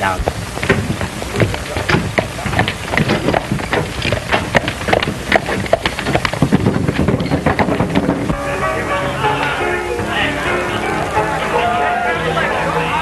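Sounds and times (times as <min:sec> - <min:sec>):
film soundtrack hiss: 0:00.0 - 0:13.0
irregular knocks: 0:00.2 - 0:08.4.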